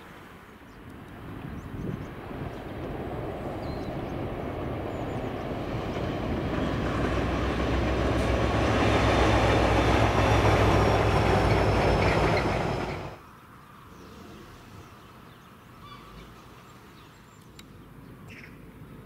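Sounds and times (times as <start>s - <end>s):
diesel locomotive engine under load: 2.0s - 13.2s
freight wagons rumbling: 2.1s - 13.2s.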